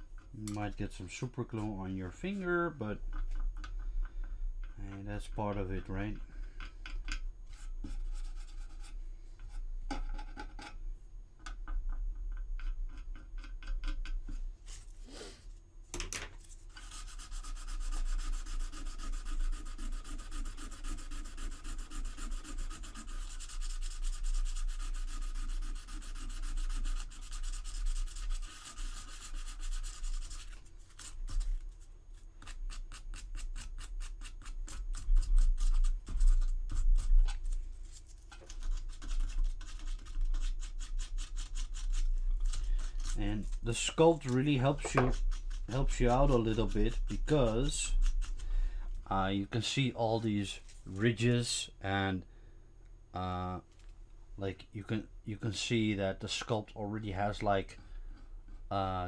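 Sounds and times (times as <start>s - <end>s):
sandpaper rubbing on resin: 7.5s - 9.0s, 16.6s - 31.8s, 32.4s - 48.4s.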